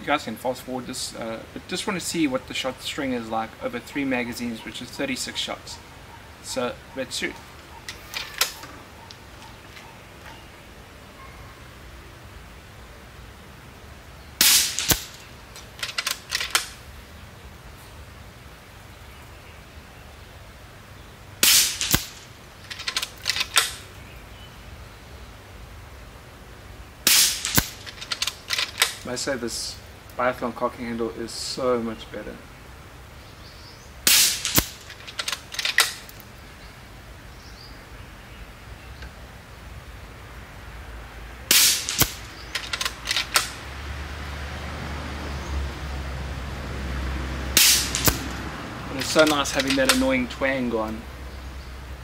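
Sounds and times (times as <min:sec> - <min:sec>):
sharp crack: 0:07.3 - 0:08.8, 0:14.4 - 0:16.8, 0:21.4 - 0:24.0, 0:27.0 - 0:29.2, 0:34.0 - 0:36.3, 0:41.5 - 0:43.7, 0:47.5 - 0:50.2
air rifle shot with hissing tail: 0:14.4 - 0:15.2, 0:21.4 - 0:22.2, 0:27.1 - 0:27.8, 0:34.1 - 0:34.8, 0:41.5 - 0:42.3, 0:47.6 - 0:48.4
metallic clicks of cocking handle: 0:14.7 - 0:16.8, 0:21.8 - 0:23.8, 0:27.4 - 0:29.0, 0:34.4 - 0:36.3, 0:41.8 - 0:43.6, 0:49.0 - 0:50.0.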